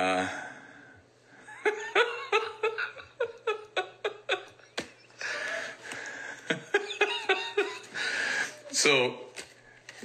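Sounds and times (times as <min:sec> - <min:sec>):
man laughing: 0:01.5 - 0:05.6, 0:06.4 - 0:08.0.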